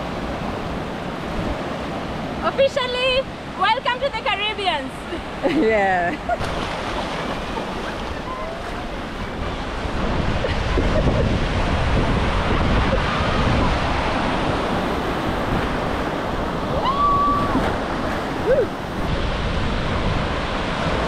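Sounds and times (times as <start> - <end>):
ocean surf breaking: 0.0 - 21.0
wind buffeting microphone: 6.4 - 21.0.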